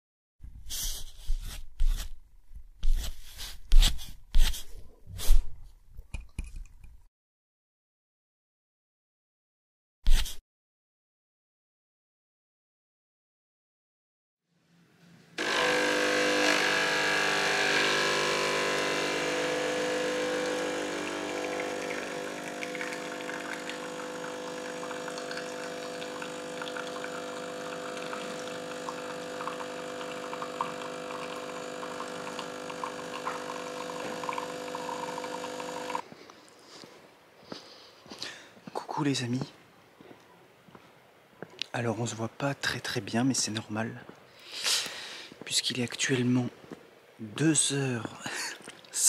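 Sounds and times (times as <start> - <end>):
coffee crackling spurts: 15.4 - 36.0
espresso machine pump buzzing: 15.4 - 36.0.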